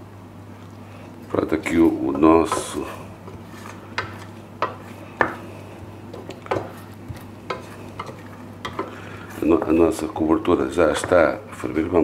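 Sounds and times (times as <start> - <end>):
low steady hum: 0.0 - 12.0
utensil clinking and scraping pan: 6.1 - 10.1.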